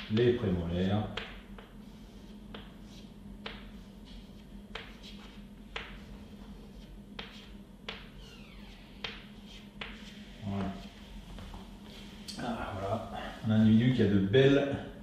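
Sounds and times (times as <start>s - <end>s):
chalk tapping on blackboard: 1.0s - 8.2s, 8.8s - 11.0s
faint chalk squeak: 8.1s - 10.1s.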